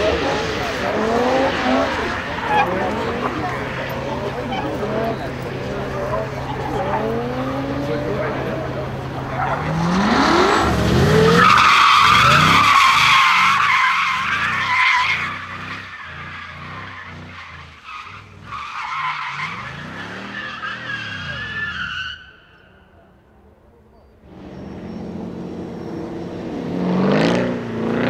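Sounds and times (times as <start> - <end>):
car engine revving: 0.0 - 21.6, 24.2 - 28.0
tyre squeal: 0.7 - 5.3, 10.5 - 22.8.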